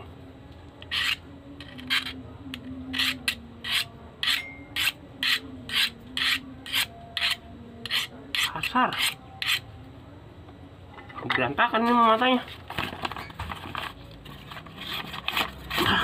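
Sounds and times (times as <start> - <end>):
knife blade scraping sharpening rod: 0.8 - 9.6.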